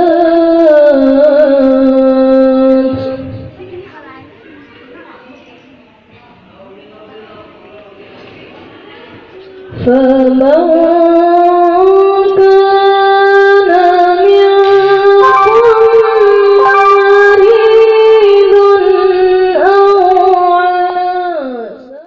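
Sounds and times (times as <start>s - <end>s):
man reciting melodically: 10.3s - 21.9s.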